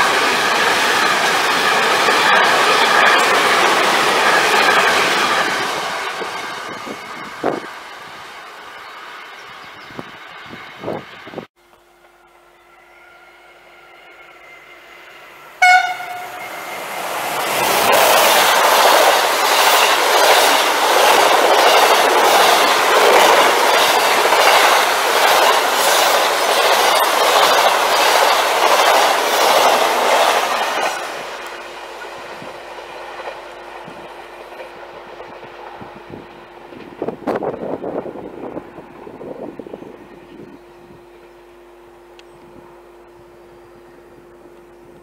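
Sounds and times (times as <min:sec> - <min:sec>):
wheels clacking over rail joints: 0:00.0 - 0:08.9, 0:15.7 - 0:36.0
train rushing past: 0:00.0 - 0:43.6
train horn blast: 0:12.8 - 0:16.7.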